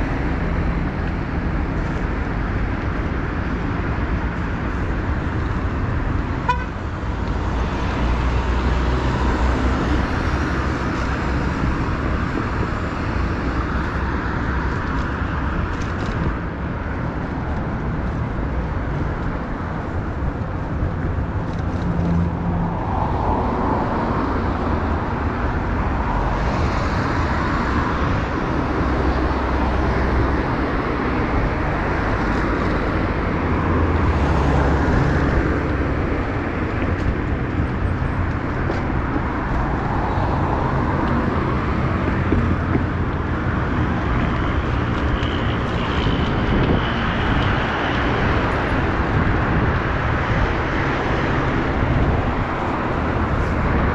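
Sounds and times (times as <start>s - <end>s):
road traffic: 0.0s - 53.9s
wind on microphone: 7.1s - 53.9s.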